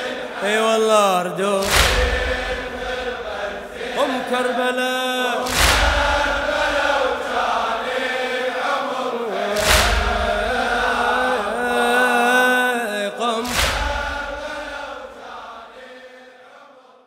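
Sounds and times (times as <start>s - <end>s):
men chanting a lament: 0.0s - 17.0s
heavy booming hits: 5.5s - 6.9s, 9.6s - 10.8s.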